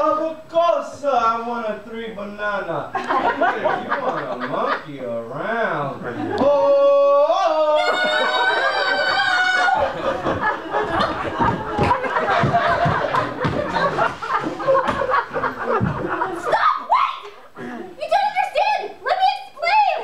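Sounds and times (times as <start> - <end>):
audience laughing: 3.0 - 4.9, 7.8 - 18.0
high-pitched held cry: 7.6 - 9.9, 16.4 - 17.4.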